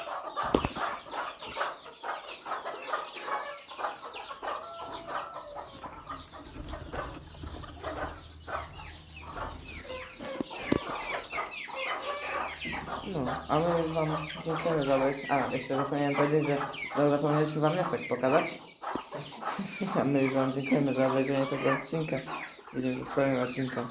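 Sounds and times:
chickens clucking: 0:00.0 - 0:23.9.

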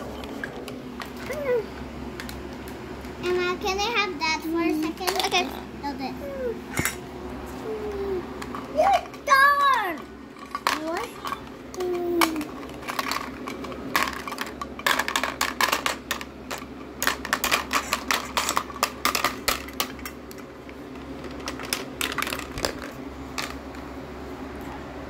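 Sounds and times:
plastic tools clicking and clattering: 0:09.9 - 0:20.4, 0:21.0 - 0:23.6.

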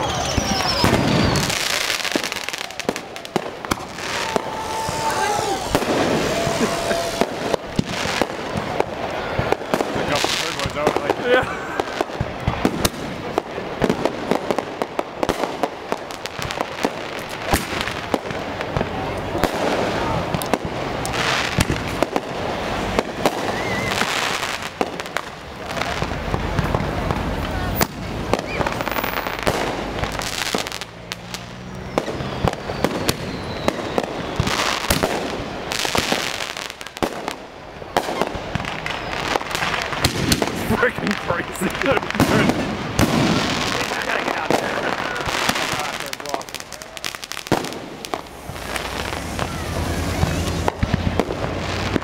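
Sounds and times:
fireworks popping and cracking: 0:00.0 - 0:52.0
loud firework bang: 0:00.2 - 0:11.2, 0:37.0 - 0:46.4, 0:47.2 - 0:52.0.

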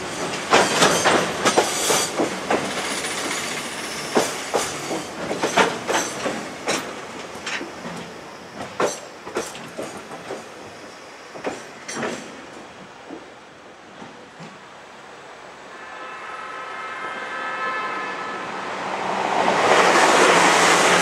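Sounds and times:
train rolling rush: 0:00.0 - 0:21.0
freight train wheels clicking: 0:00.1 - 0:13.3.

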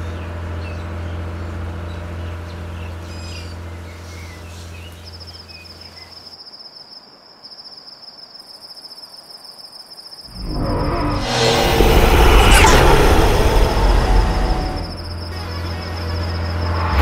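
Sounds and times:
low droning hum: 0:10.3 - 0:17.0
pulsing insect trill: 0:11.8 - 0:17.0.

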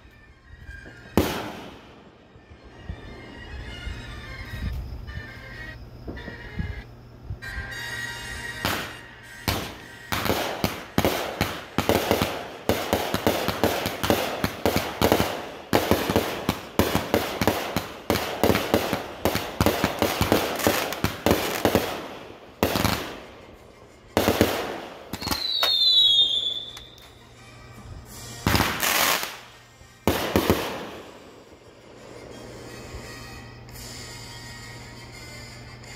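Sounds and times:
firework whistle: 0:00.0 - 0:35.9
fireworks cracking bursts: 0:00.7 - 0:02.4, 0:07.4 - 0:27.2, 0:28.0 - 0:35.8
fireworks booms: 0:00.8 - 0:02.1, 0:08.6 - 0:23.5, 0:24.2 - 0:26.7, 0:28.5 - 0:29.4, 0:30.1 - 0:32.3.

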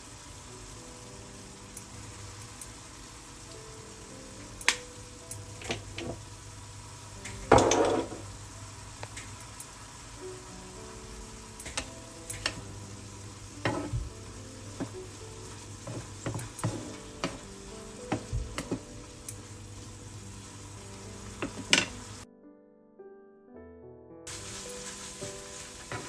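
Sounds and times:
meat sizzling in frying pan: 0:00.0 - 0:22.3, 0:24.3 - 0:26.0
spatula knocking and scraping pan: 0:13.6 - 0:14.1, 0:15.8 - 0:17.5.

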